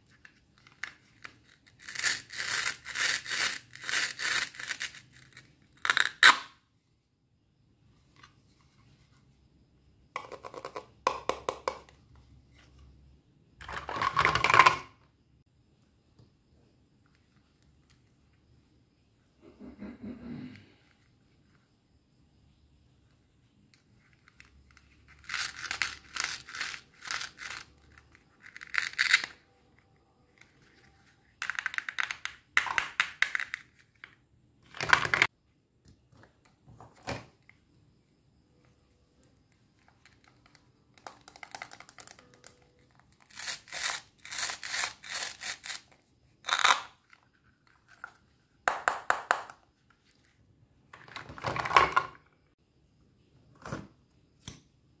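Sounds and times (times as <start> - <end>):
velcro rasping rips: 1.7 - 6.5, 28.4 - 29.4, 43.3 - 45.8, 46.4 - 46.9.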